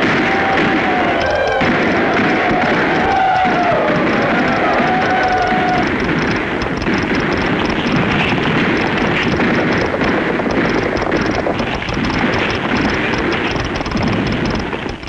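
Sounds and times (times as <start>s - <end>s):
many horses galloping: 0.0s - 15.0s.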